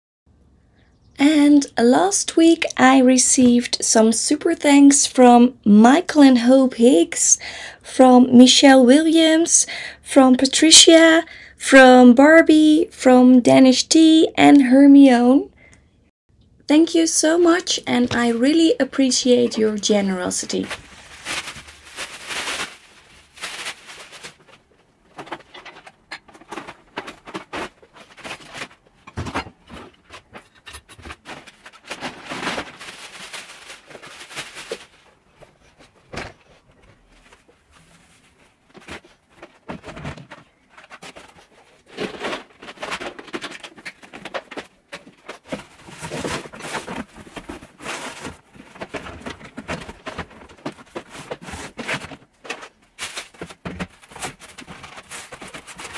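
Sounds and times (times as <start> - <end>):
clutter rustling and knocking: 17.4 - 55.9.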